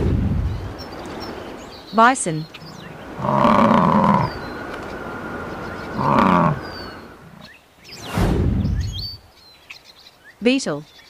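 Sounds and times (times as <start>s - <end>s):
bison grunting: 3.2s - 4.5s, 5.9s - 7.4s.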